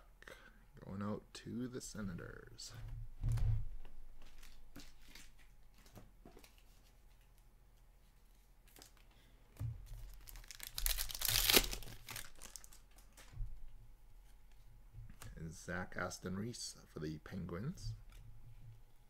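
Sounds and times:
foil wrapper tearing and crinkling: 10.0s - 13.2s.

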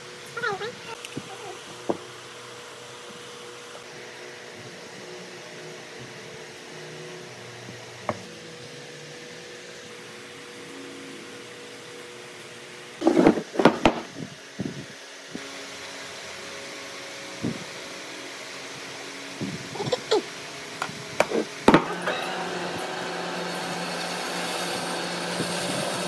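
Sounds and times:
steady mechanical hum: 0.0s - 26.0s.

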